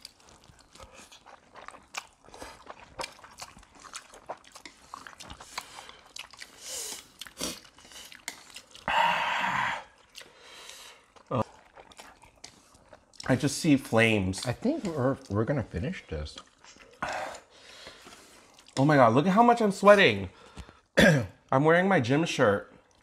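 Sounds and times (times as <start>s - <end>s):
chewing and mouth smacks: 0.0s - 8.9s, 9.9s - 13.5s, 16.0s - 19.0s, 22.8s - 23.0s
noodle slurping: 0.0s - 15.3s.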